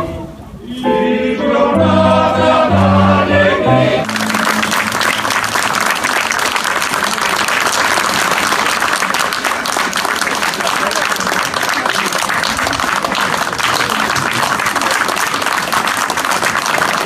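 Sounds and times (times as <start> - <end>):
choir singing with piano: 0.0 - 4.6
audience applause: 4.0 - 17.0.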